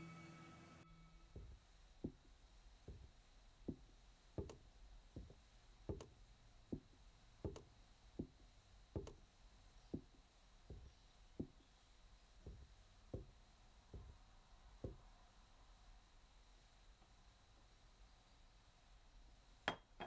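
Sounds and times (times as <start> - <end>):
bare footsteps on wooden floor: 1.3 - 9.3, 9.9 - 11.8, 12.4 - 15.1.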